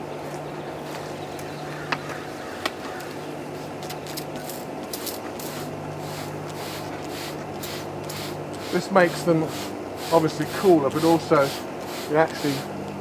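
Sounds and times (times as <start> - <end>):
steady low hum: 0.0 - 13.0
spray bottle squirting: 4.1 - 12.7.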